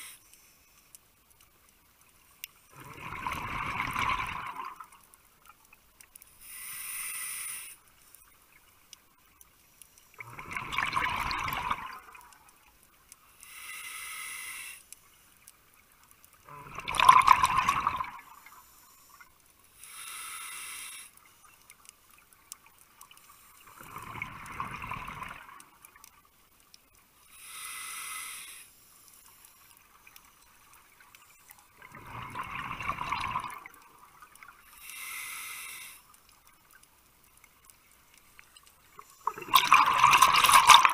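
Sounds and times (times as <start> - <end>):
exhaled bubbles rushing: 2.8 - 4.8, 10.2 - 12.3, 16.5 - 18.4, 23.9 - 25.6, 31.8 - 33.8, 39.2 - 40.9
scuba regulator air hiss: 6.3 - 7.9, 13.4 - 14.9, 19.8 - 21.2, 27.3 - 29.1, 34.7 - 36.1.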